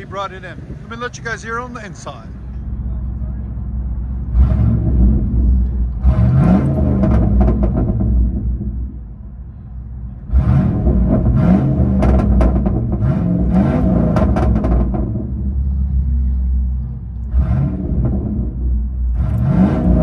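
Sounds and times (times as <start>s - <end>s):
engine idling: 0.0s - 20.0s
engine revving with crackles: 4.2s - 9.0s, 10.2s - 20.0s.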